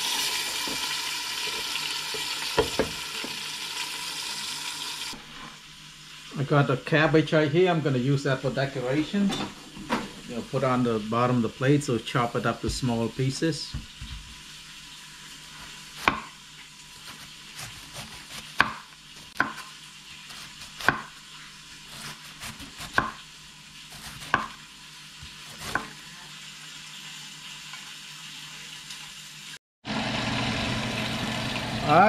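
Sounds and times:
knife chopping cabbage on board: 0:16.0 - 0:16.4, 0:17.0 - 0:21.2, 0:21.9 - 0:23.2, 0:23.9 - 0:24.6, 0:25.2 - 0:26.0.

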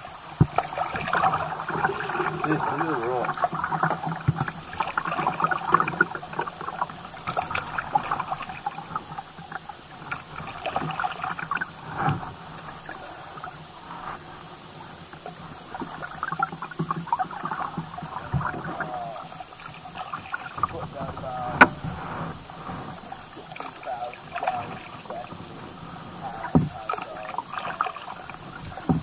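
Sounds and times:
kayak paddle dipping and dripping: 0:00.0 - 0:29.0
water splashing against hull: 0:00.0 - 0:29.0.

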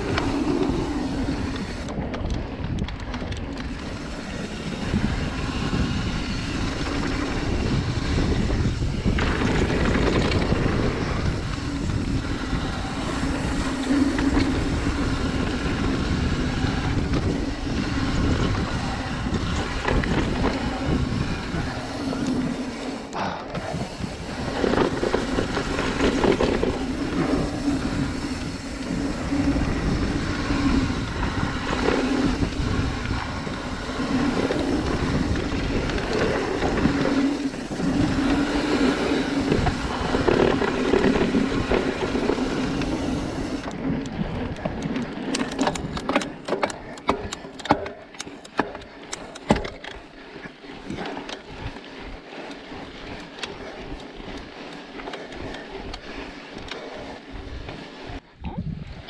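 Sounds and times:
wind rushing over microphone: 0:00.0 - 0:46.2, 0:55.4 - 0:59.0
tyres rumbling over trail: 0:00.0 - 0:58.2
bike clicks and rattles: 0:00.0 - 0:59.0.

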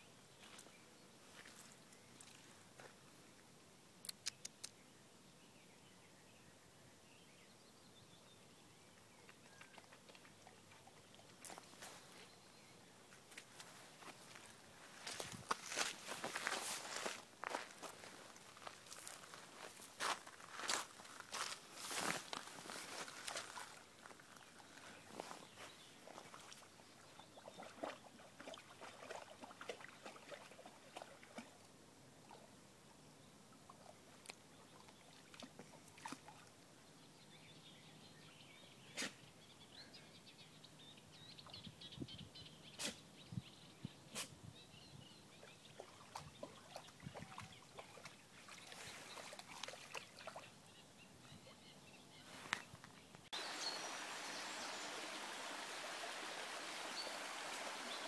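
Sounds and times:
sharp clicks: 0:04.0 - 0:04.8
dog splashing through water: 0:27.4 - 0:31.6, 0:45.8 - 0:50.5
stream rushing: 0:53.4 - 0:58.0.

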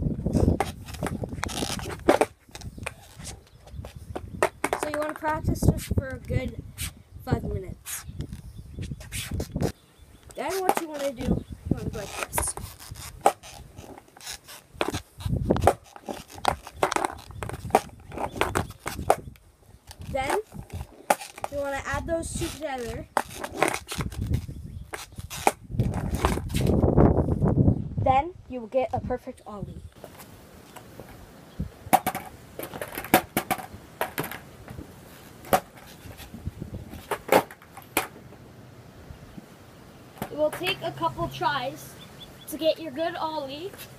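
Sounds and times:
skateboard scraping on asphalt: 0:00.2 - 0:06.9, 0:08.8 - 0:27.0, 0:30.0 - 0:38.4, 0:40.2 - 0:41.9, 0:42.5 - 0:43.9
sneakers scuffing on grip tape: 0:00.3 - 0:04.9, 0:05.6 - 0:06.0, 0:07.8 - 0:19.2, 0:22.5 - 0:26.8.

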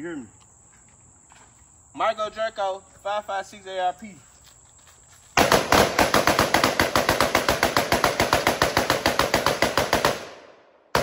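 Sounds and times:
rifle rapid fire: 0:05.4 - 0:11.0.

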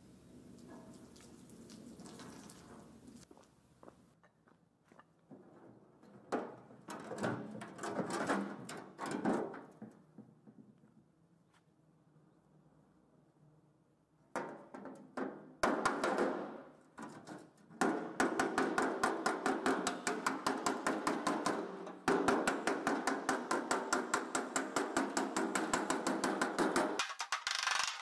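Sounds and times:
hammer striking metal panel: 0:14.4 - 0:16.7, 0:17.8 - 0:27.0.

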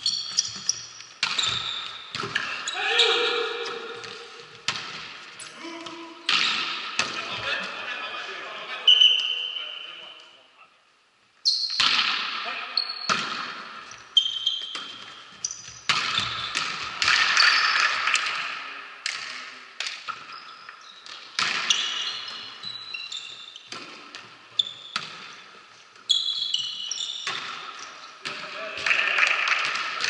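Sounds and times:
sneakers squeaking on court: 0:00.0 - 0:05.5, 0:12.8 - 0:17.9, 0:20.1 - 0:28.4
volleyball smacks echoing: 0:03.4 - 0:05.2, 0:05.8 - 0:07.3, 0:11.8 - 0:12.5, 0:13.1 - 0:13.8, 0:15.9 - 0:20.2, 0:27.2 - 0:30.0.

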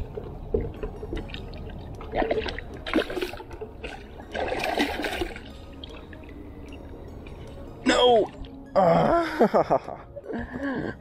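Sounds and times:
fish splashing water: 0:01.2 - 0:06.3.

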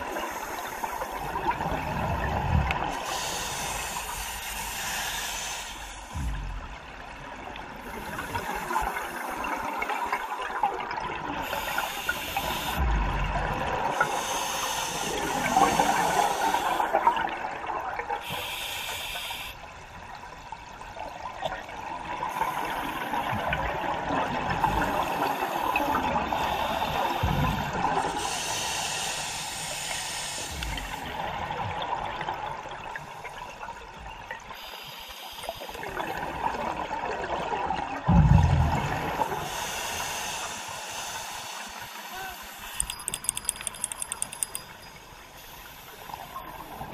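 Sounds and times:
hissing regulator inhalations: 0:18.2 - 0:19.6, 0:39.4 - 0:46.4.

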